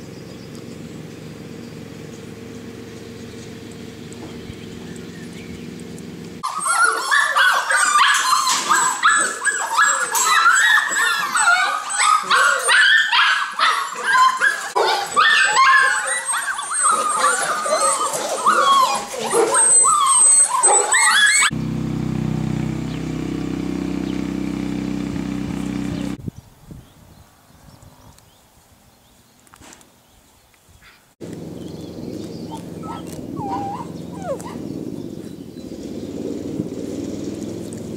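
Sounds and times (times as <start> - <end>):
puppies whining and yelping: 6.4 - 21.5, 31.6 - 35.7
steady low drone: 21.5 - 26.2, 31.2 - 37.9.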